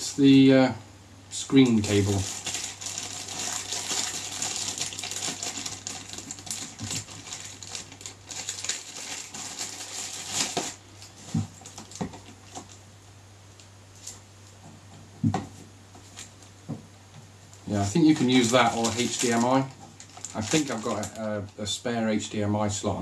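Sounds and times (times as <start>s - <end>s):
plastic bag crinkling: 1.8s - 12.8s, 18.1s - 21.6s.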